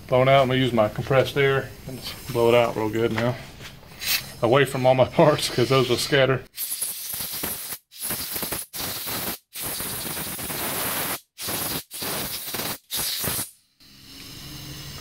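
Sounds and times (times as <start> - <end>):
compressed air bursts hissing: 3.9 - 15.0.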